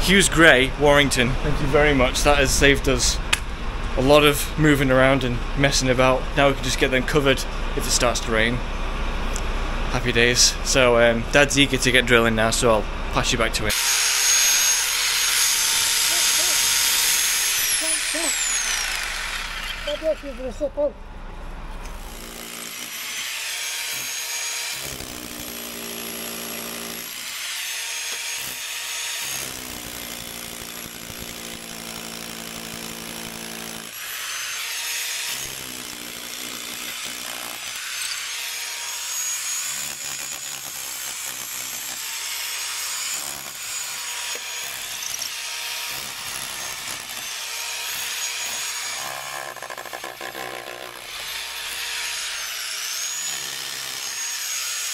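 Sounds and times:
hammer drill whining into mortar: 0:13.7 - 0:20.6, 0:21.8 - 0:54.9.

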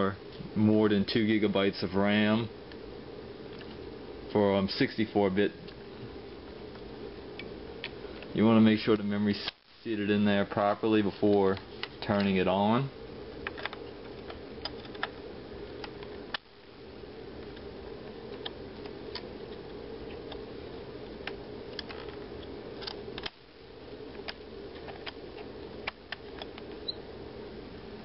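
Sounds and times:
low background hum: 0:00.0 - 0:28.0
faint clicks of memory modules: 0:17.4 - 0:27.0.

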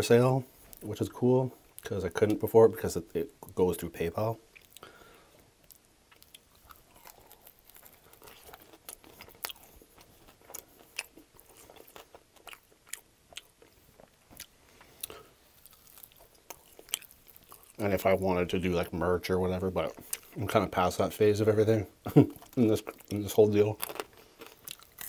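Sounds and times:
crunchy chewing: 0:04.5 - 0:18.2, 0:19.8 - 0:20.4, 0:22.1 - 0:25.0.

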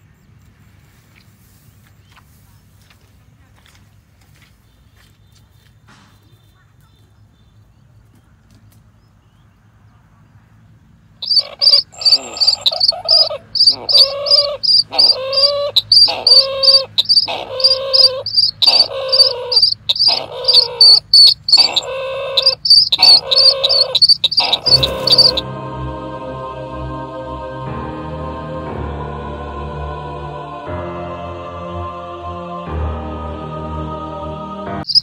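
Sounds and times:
bird calling: 0:11.2 - 0:25.4
music: 0:24.7 - 0:34.9.

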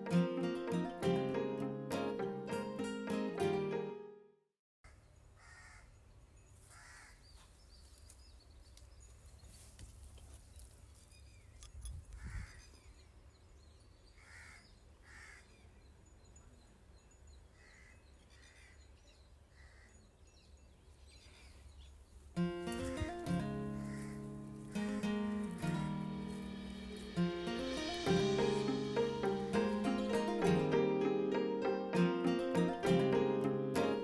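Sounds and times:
crow cawing: 0:05.4 - 0:05.9, 0:06.7 - 0:07.2, 0:14.2 - 0:15.5, 0:23.8 - 0:25.0.

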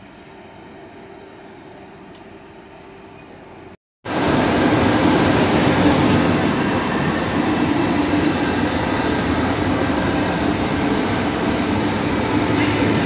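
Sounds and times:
electric locomotive rolling past: 0:04.1 - 0:13.0.

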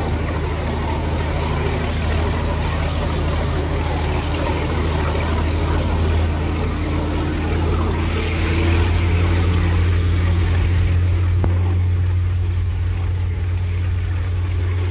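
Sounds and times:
boat engine droning: 0:00.0 - 0:14.9
rush of churning wake: 0:00.0 - 0:14.9
wind: 0:00.0 - 0:14.9.

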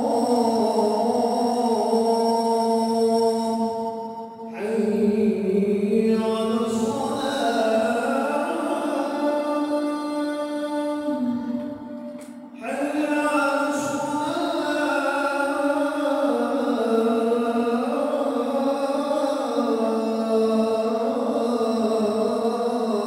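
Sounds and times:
person chanting in long notes: 0:00.0 - 0:23.0.

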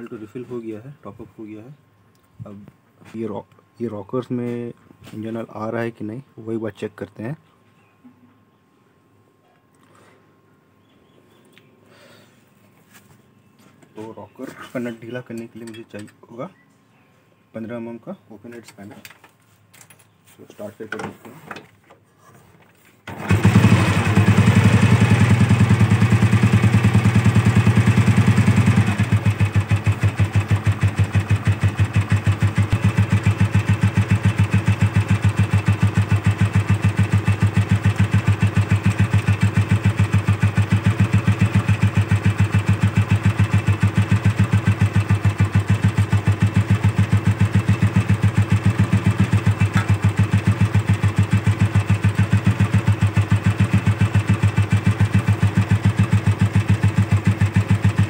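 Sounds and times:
motorcycle engine idling: 0:23.2 - 0:58.0.

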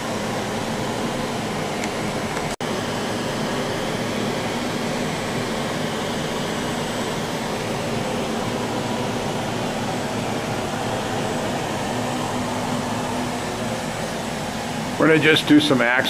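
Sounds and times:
machinery hiss and hum: 0:00.0 - 0:16.0.

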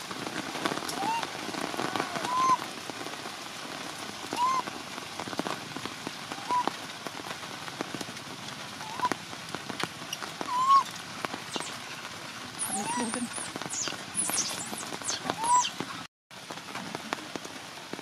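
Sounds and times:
heavy rain: 0:00.0 - 0:18.0
baby monkey crying: 0:01.9 - 0:02.6, 0:12.6 - 0:15.7.

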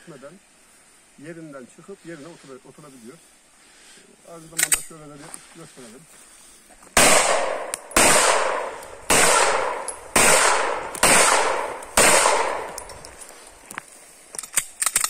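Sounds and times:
pistol shots echoing: 0:07.0 - 0:12.9.

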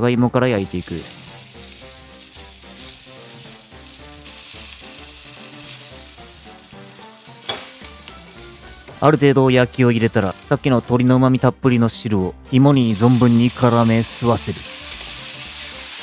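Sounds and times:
spatula turning food: 0:00.6 - 0:09.0
potatoes sizzling in frying pan: 0:00.6 - 0:11.2, 0:12.7 - 0:16.0.

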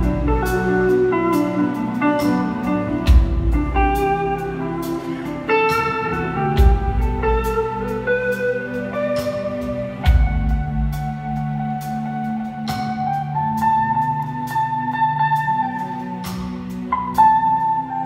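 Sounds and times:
blues-rock band playing: 0:00.0 - 0:18.0
electric guitar lead: 0:00.0 - 0:18.0.

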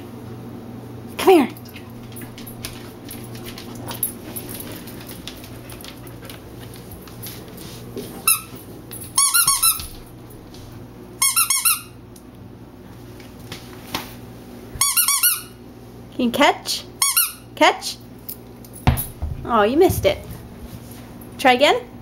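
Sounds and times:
squeaky dog toy squeaking: 0:11.2 - 0:11.9, 0:14.8 - 0:15.6, 0:17.0 - 0:17.5.

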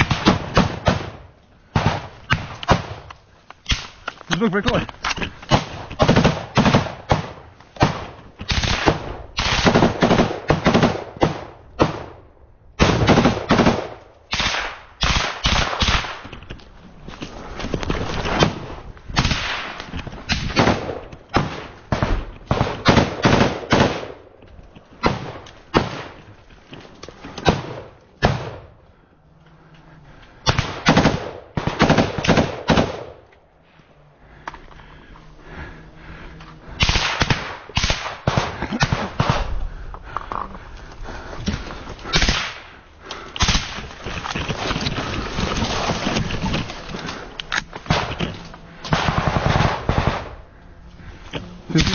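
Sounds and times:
rifle fire: 0:00.0 - 0:03.1, 0:05.5 - 0:12.2, 0:12.8 - 0:16.3, 0:19.2 - 0:24.2, 0:25.0 - 0:26.2, 0:27.4 - 0:28.7, 0:30.4 - 0:33.2, 0:36.8 - 0:39.5, 0:42.1 - 0:42.8, 0:43.4 - 0:43.9, 0:47.9 - 0:48.2, 0:48.8 - 0:50.4.

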